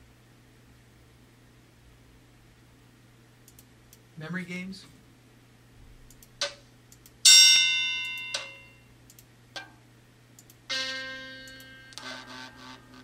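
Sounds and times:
faint clicks: 0:03.4 - 0:04.0, 0:09.1 - 0:09.7, 0:10.4 - 0:10.6
bell-like game notes: 0:07.3 - 0:08.8, 0:10.7 - 0:12.1.

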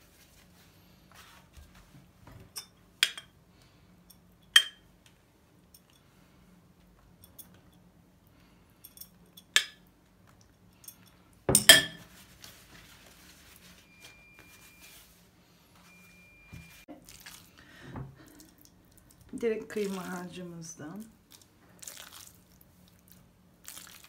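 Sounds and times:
pastry sheets rustling: 0:00.0 - 0:02.4, 0:12.0 - 0:17.6
metal spoon clinking on glass bowl: 0:02.6 - 0:03.3, 0:04.6 - 0:04.8, 0:11.5 - 0:12.0.

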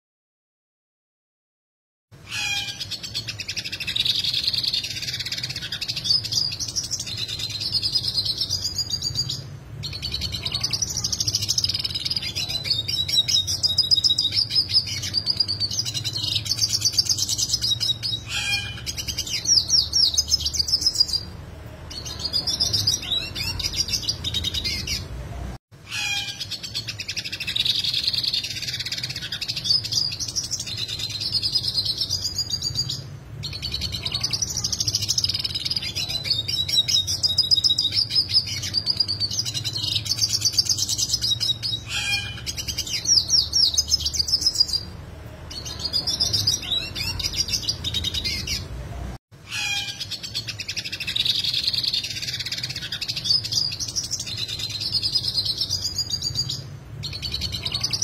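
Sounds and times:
bird singing fast trills: 0:02.2 - 0:25.0, 0:25.8 - 0:44.9.

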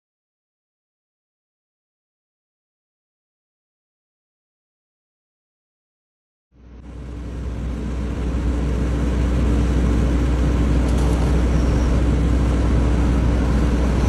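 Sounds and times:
truck engine rumbling: 0:06.6 - 0:14.0.

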